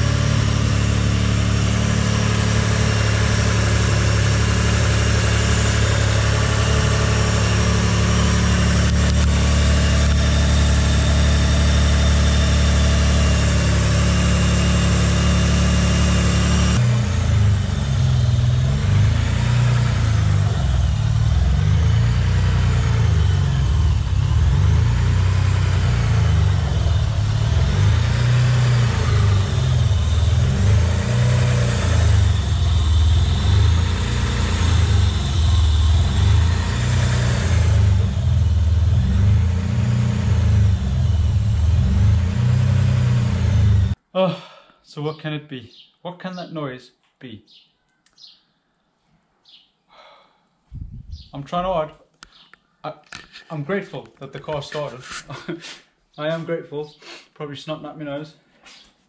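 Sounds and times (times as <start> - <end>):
car engine idling: 0.0 - 44.0
high whine: 17.0 - 44.0.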